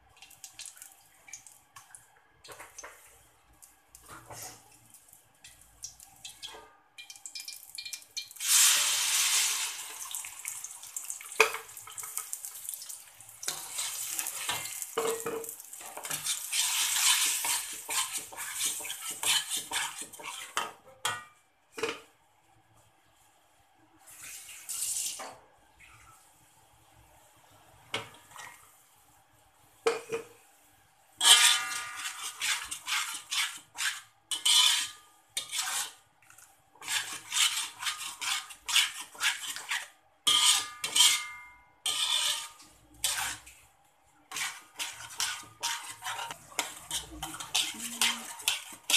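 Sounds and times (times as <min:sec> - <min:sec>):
paste sizzling in hot oil: 0:07.2 - 0:20.7, 0:31.2 - 0:43.7, 0:44.3 - 0:48.9
metal spatula scraping wok: 0:13.5 - 0:21.2, 0:31.2 - 0:36.0, 0:36.8 - 0:43.6, 0:44.3 - 0:48.9.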